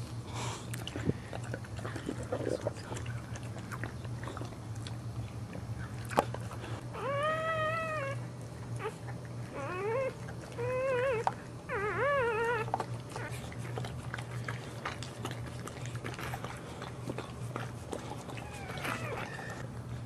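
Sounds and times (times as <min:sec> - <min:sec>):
dog licking wet clicks: 0:00.7 - 0:06.6
puppies squealing: 0:06.9 - 0:08.2, 0:08.8 - 0:13.4, 0:18.3 - 0:19.6.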